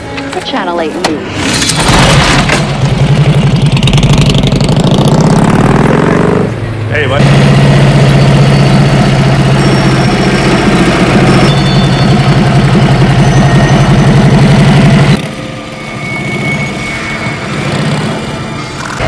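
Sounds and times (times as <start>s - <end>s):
motorcycle engine idling: 2.8s - 5.9s.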